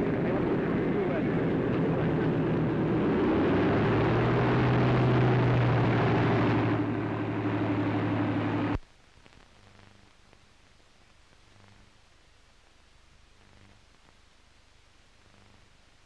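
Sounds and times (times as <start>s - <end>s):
propeller plane engines droning: 0.0s - 8.8s.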